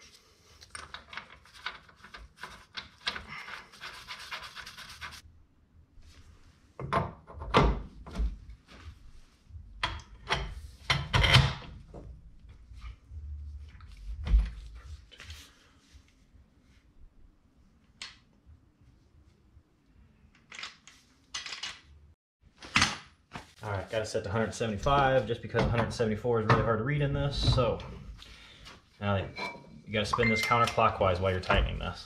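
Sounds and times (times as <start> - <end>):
tools knocking and thunking: 6.8 - 8.4, 9.7 - 12.1, 25.5 - 27.9.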